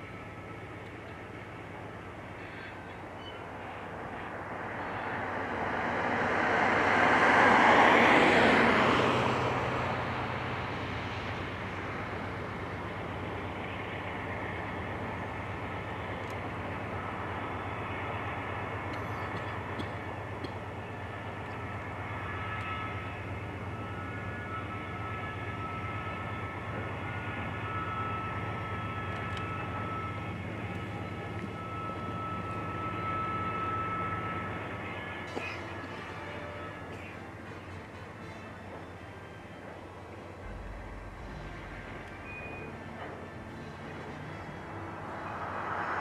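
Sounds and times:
freight train rumbling: 0:00.0 - 0:46.0
loud pass-by noise: 0:03.4 - 0:37.9, 0:39.1 - 0:46.0
faint high tones: 0:40.4 - 0:45.6.

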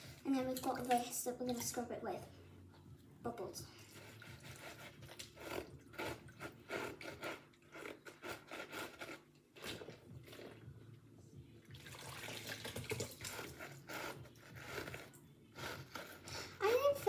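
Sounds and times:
water splashing and dripping: 0:00.0 - 0:02.0, 0:11.7 - 0:13.6
sponge scrubbing plastic toy: 0:03.8 - 0:09.8, 0:13.1 - 0:17.0.

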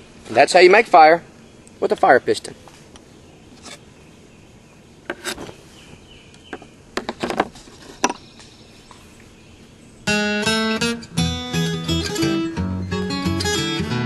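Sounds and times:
faint steady hiss: 0:00.0 - 0:11.6
strummed acoustic guitar music: 0:10.1 - 0:14.0.

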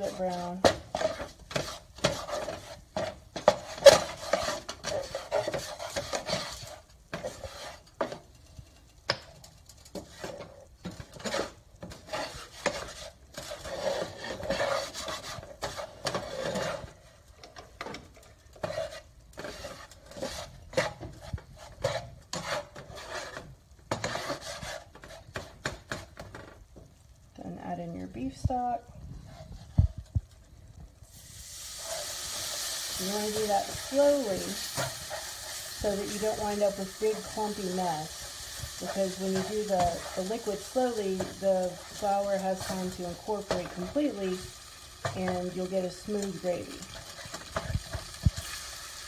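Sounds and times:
metal spatula scraping skillet: 0:00.0 - 0:26.5, 0:29.0 - 0:30.5, 0:31.1 - 0:49.0.

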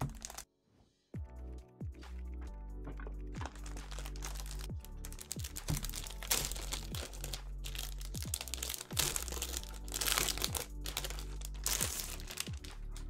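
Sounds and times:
plastic wrapping crinkling: 0:00.0 - 0:00.4, 0:03.4 - 0:13.0.

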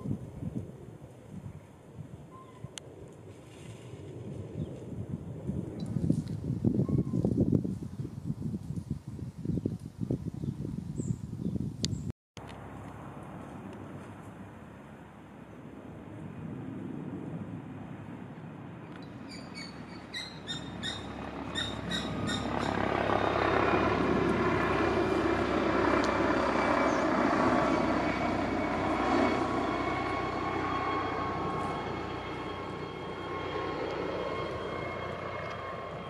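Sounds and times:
vehicle engine rumble passing: 0:19.1 - 0:36.0.

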